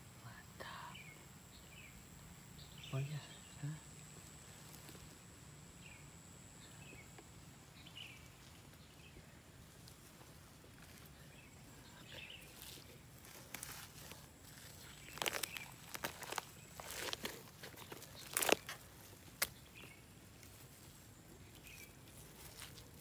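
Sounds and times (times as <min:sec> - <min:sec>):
rotten wood being torn apart: 0:12.7 - 0:19.9.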